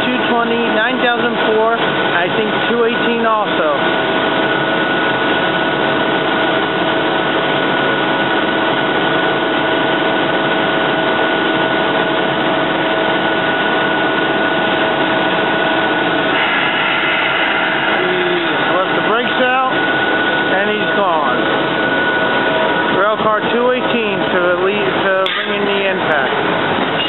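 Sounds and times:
railcar equipment whirring hum: 0.0s - 27.0s
steady whining tones: 0.0s - 27.0s.

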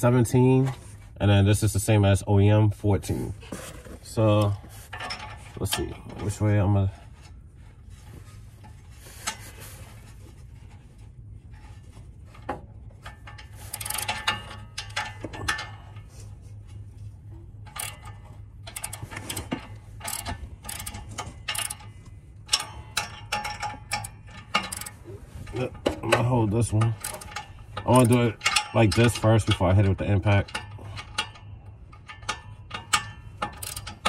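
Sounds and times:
ratchet wrench clicking: 13.2s - 15.7s, 17.6s - 21.9s, 22.5s - 25.0s, 26.9s - 29.5s, 32.0s - 34.0s.

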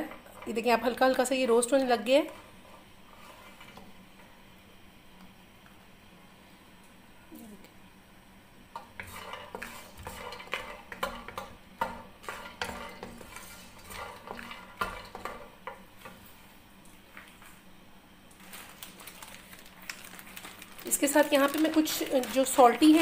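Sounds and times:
wooden spoon stirring nuts in wok: 0.0s - 4.4s, 8.8s - 16.2s.

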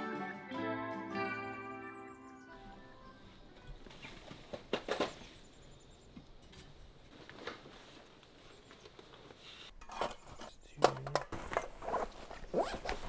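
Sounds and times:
backpack fabric rustling: 11.4s - 13.0s.

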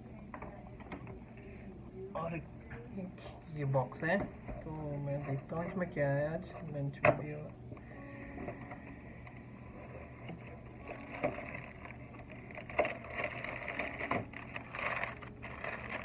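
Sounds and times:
paper snack bag crinkling: 10.7s - 16.0s.

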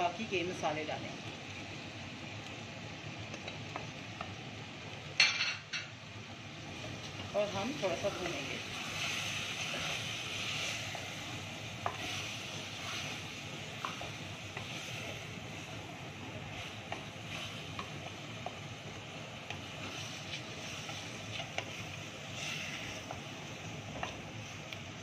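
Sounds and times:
meat sizzling in oil: 0.0s - 25.0s.

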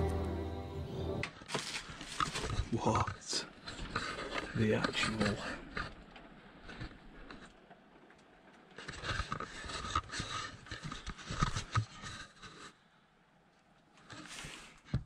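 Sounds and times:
camera scraping and rustling: 1.4s - 6.0s, 8.8s - 12.8s, 14.0s - 14.9s.

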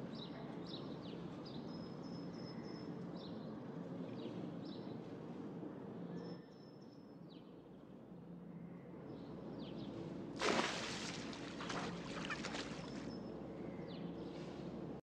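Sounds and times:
cat splashing in water: 10.4s - 13.1s
cat splashing into pool: 10.4s - 13.1s.

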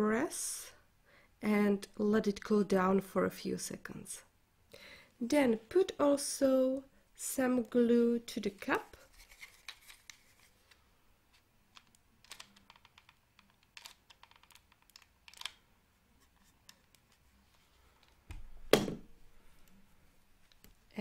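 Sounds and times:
faint clicks and taps: 20.4s - 20.8s.

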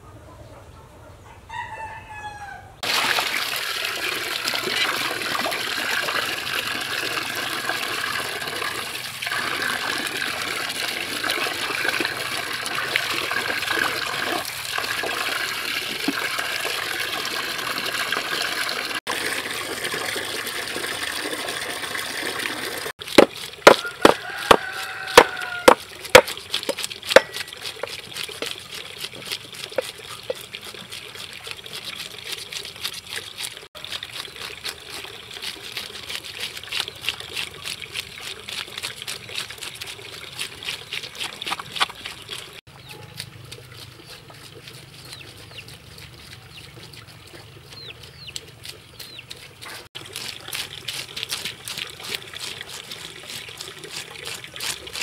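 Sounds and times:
hose water splashing into metal basin: 2.8s - 55.0s
scraping fish scales: 23.0s - 55.0s.

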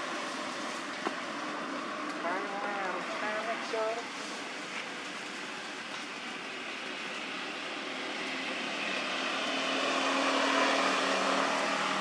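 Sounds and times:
motor vehicle passing: 7.7s - 12.0s.

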